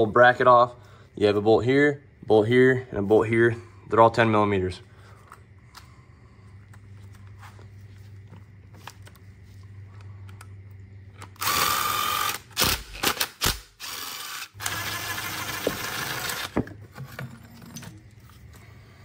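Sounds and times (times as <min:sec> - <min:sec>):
power tool motor whirring: 0:11.4 - 0:16.6.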